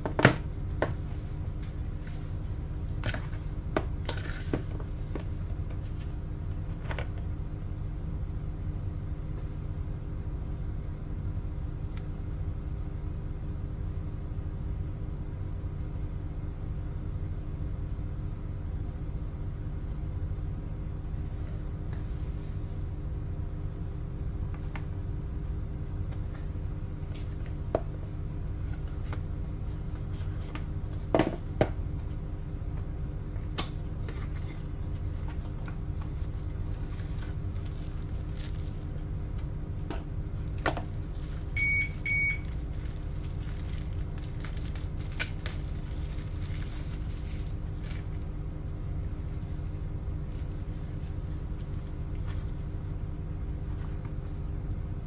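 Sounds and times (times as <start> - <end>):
steady low hum: 0.0 - 55.0
cardboard packaging handled: 4.1 - 5.4, 33.8 - 39.4, 42.4 - 48.3.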